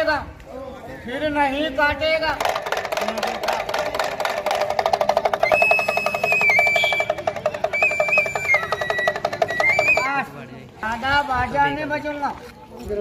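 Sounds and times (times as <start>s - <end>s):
hand drum rattling fast: 2.2s - 10.2s.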